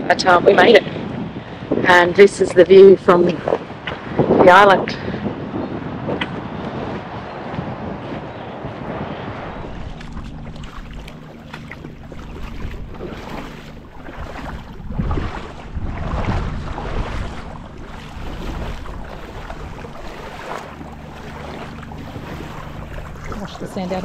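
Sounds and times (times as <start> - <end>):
wind buffeting microphone: 0.0 - 24.0
boat engine idling: 9.4 - 24.0.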